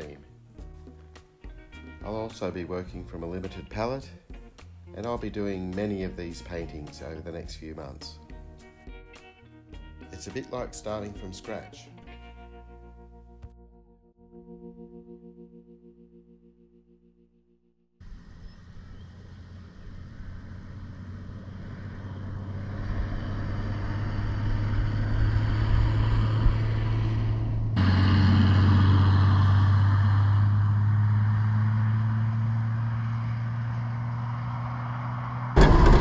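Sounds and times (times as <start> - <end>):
vehicle engine droning: 18.0 - 36.0.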